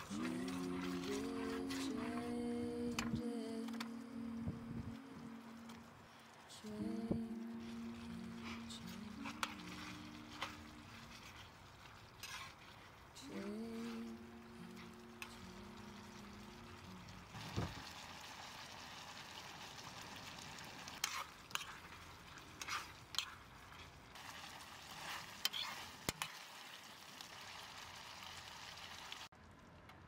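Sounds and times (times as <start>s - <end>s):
metal spoon scraping a pan: 0.0s - 2.2s, 7.6s - 14.0s, 20.9s - 24.0s, 24.9s - 26.4s
food sizzling in a pan: 6.6s - 29.3s.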